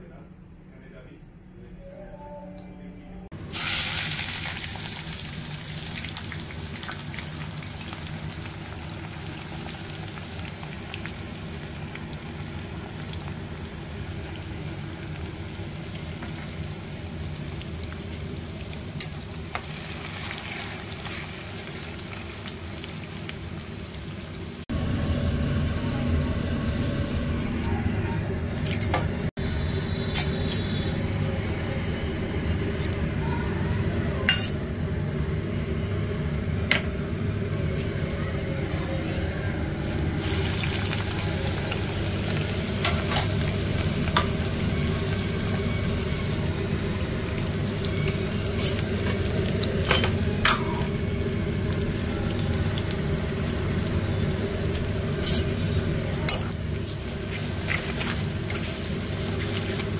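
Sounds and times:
food sizzling in a pan: 0:03.5 - 0:24.6, 0:39.8 - 0:59.9.

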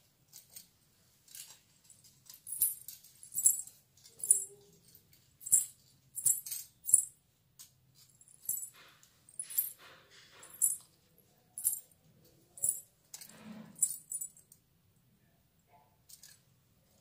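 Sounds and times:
small bells jingling: 0:02.4 - 0:04.6, 0:05.4 - 0:07.1, 0:08.1 - 0:09.8, 0:10.4 - 0:10.8, 0:11.6 - 0:11.9, 0:12.6 - 0:12.9, 0:13.8 - 0:14.4.

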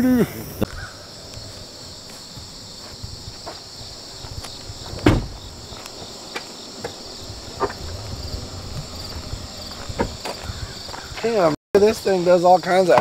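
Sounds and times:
insects chirring: 0:00.0 - 0:13.0
loud thump: 0:04.8 - 0:05.5, 0:07.6 - 0:10.4.

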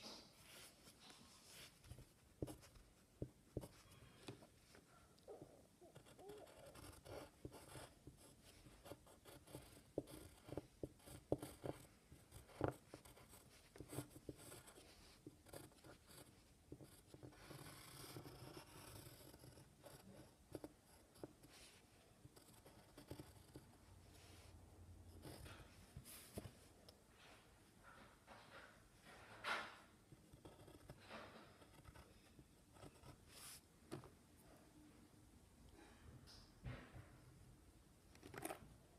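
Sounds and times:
pencil scratching on paper: 0:00.0 - 0:04.8, 0:05.8 - 0:26.7, 0:30.2 - 0:34.1
pencil tapping paper: 0:01.5 - 0:04.8, 0:05.9 - 0:21.6.

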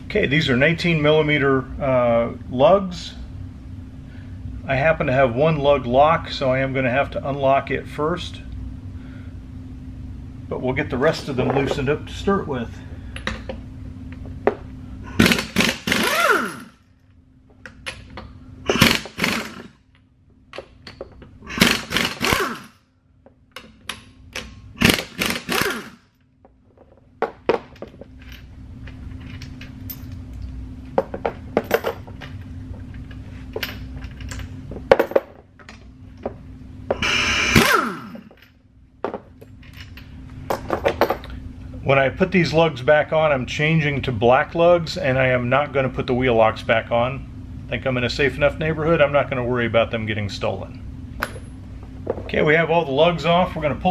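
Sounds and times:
faint steady hum: 0:00.0 - 0:53.9
impact wrench rattling: 0:14.5 - 0:16.8, 0:17.7 - 0:19.8, 0:20.6 - 0:22.8, 0:23.6 - 0:26.0, 0:36.9 - 0:38.5.

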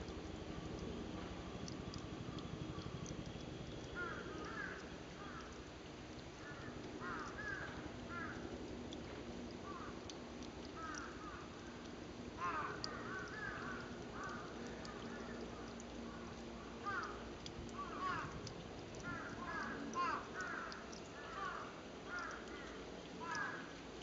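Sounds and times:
low steady hum: 0:00.0 - 0:24.0
crows cawing: 0:04.0 - 0:05.6, 0:06.4 - 0:08.5, 0:09.6 - 0:10.0, 0:10.8 - 0:11.6, 0:12.4 - 0:15.4, 0:16.8 - 0:17.2, 0:17.8 - 0:18.4, 0:19.0 - 0:23.7.

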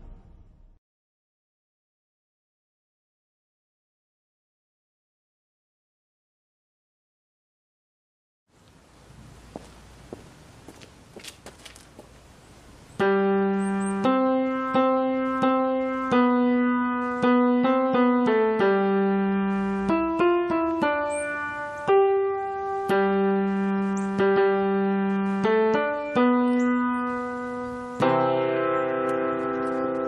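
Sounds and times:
electronic keyboard melody: 0:13.0 - 0:30.0.

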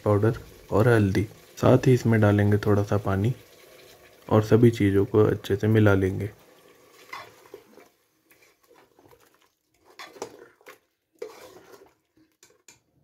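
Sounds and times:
spoon scraping metal pot: 0:06.9 - 0:12.9.

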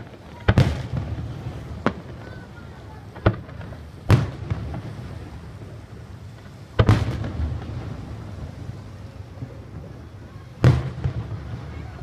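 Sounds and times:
low rolling rumble: 0:00.0 - 0:12.0
firework boom: 0:03.1 - 0:12.0.

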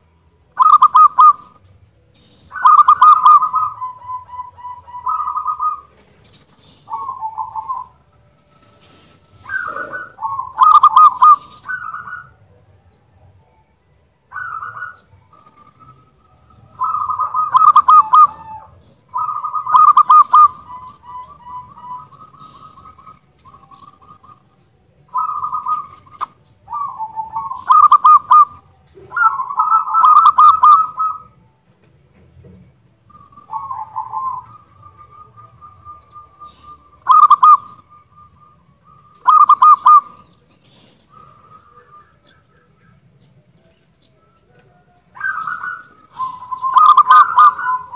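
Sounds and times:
dove cooing: 0:00.5 - 0:12.5, 0:14.2 - 0:31.4, 0:33.0 - 0:47.9.

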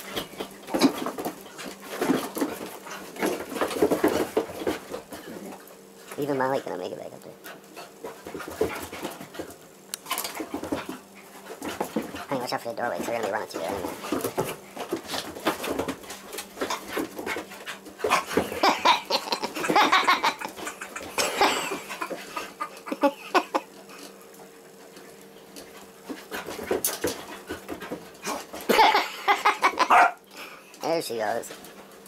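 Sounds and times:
dogs scuffling: 0:00.0 - 0:06.7, 0:07.4 - 0:30.2
dogs growling and vocalizing: 0:16.4 - 0:24.4.

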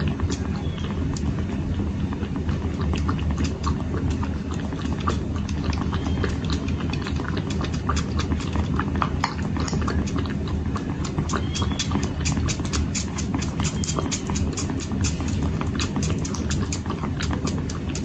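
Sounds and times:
kittens sucking and smacking: 0:00.0 - 0:18.0
steady low hum: 0:00.0 - 0:18.0.

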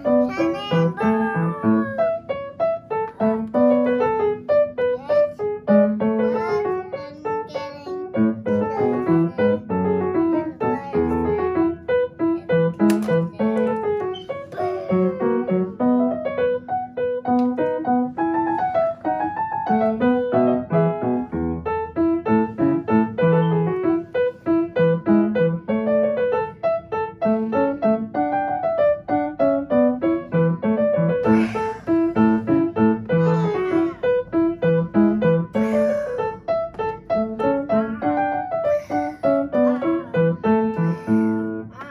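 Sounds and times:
upright piano played briskly: 0:00.0 - 0:41.9.

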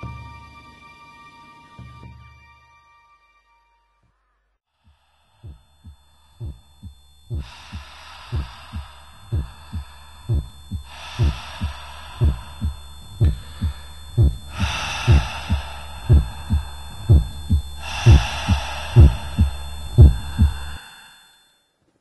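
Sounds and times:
low steady drone: 0:05.0 - 0:21.3
soft hiss swells: 0:05.0 - 0:21.5
heartbeat thumps: 0:05.4 - 0:20.8.

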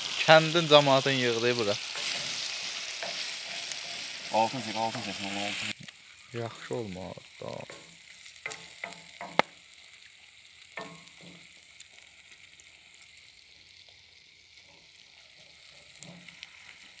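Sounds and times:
meat sizzling in iron pan: 0:00.0 - 0:17.0
wooden spoon scraping pan: 0:01.8 - 0:05.3.

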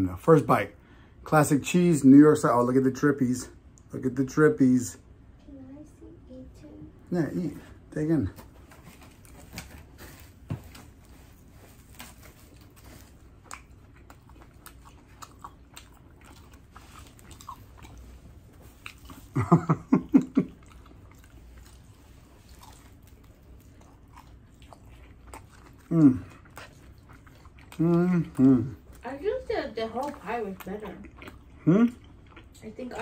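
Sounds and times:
person chewing: 0:08.4 - 0:29.2, 0:29.8 - 0:33.0.

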